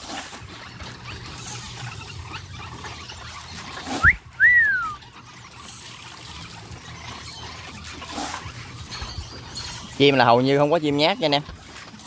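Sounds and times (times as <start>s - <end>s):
short whistled notes: 4.0s - 5.0s.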